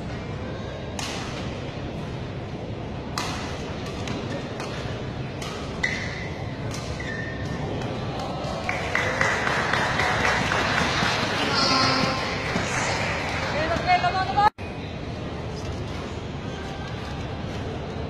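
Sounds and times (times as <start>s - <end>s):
murmur of large hall: 0.0s - 18.0s
rackets striking shuttlecock: 3.1s - 7.9s
shoes squeaking on floor: 5.8s - 7.6s.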